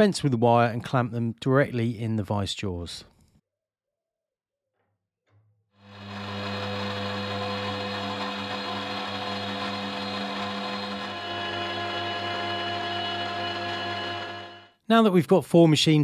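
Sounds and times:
milling machine motor hum: 5.8 - 14.7.

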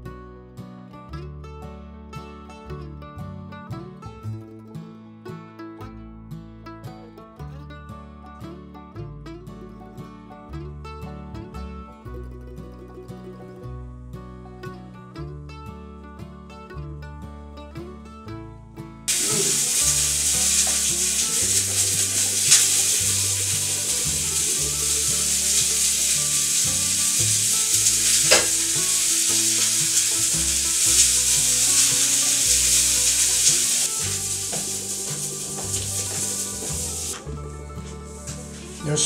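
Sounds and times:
plucked melody music: 0.0 - 39.0
loud steady hiss: 19.1 - 37.3, 37.9 - 39.0.

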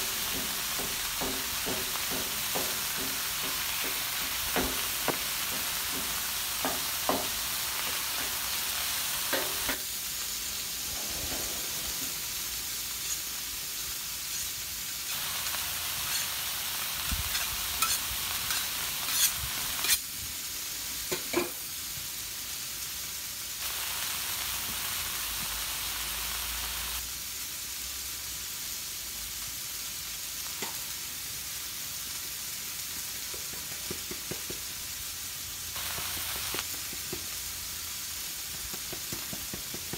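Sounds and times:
meat sizzling on griddle: 0.0 - 39.9
metal spatula scraping griddle: 10.8 - 16.4, 17.0 - 20.0.

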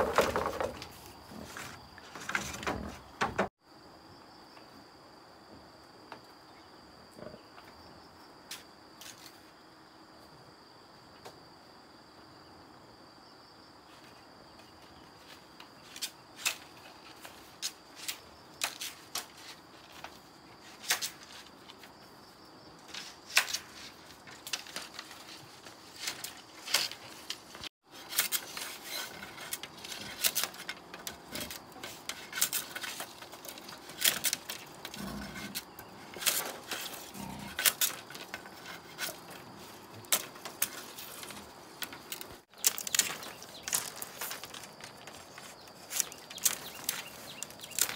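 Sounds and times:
bamboo knocking and clacking: 0.0 - 1.0, 37.6 - 47.9
high insect drone: 0.0 - 47.9.

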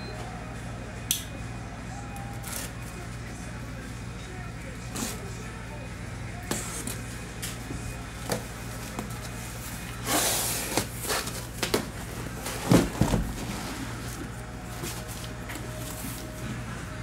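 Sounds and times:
cardboard and tape rustling: 6.4 - 16.7
heavy thumps of box: 11.6 - 13.5.

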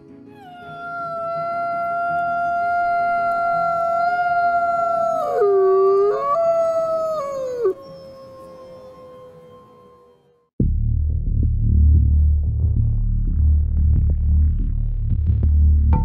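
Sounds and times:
wolf howling: 0.3 - 10.4
fainter lower howl: 0.4 - 10.4.

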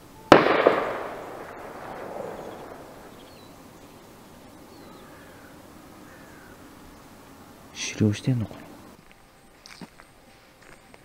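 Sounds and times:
gunshot echo rolling: 0.3 - 4.3
faint bird chirps: 0.9 - 10.2.

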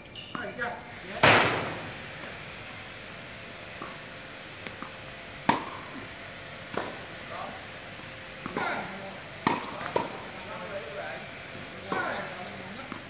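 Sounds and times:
tennis ball struck by racket: 4.6 - 7.3, 8.0 - 10.9.

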